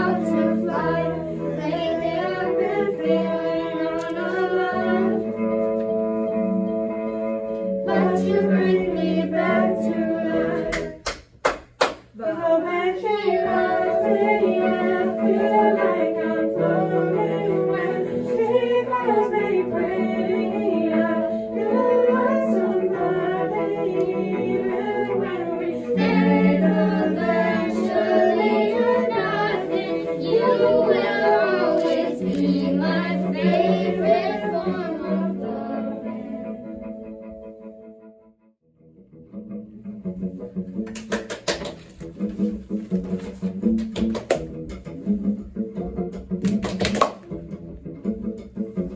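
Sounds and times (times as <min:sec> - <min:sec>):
young voices singing together: 0:00.0 - 0:05.6, 0:07.7 - 0:11.0, 0:12.1 - 0:36.9
cello notes: 0:00.0 - 0:11.0, 0:12.2 - 0:38.2, 0:38.8 - 0:48.9
held keyboard notes: 0:00.0 - 0:11.0, 0:13.1 - 0:38.3.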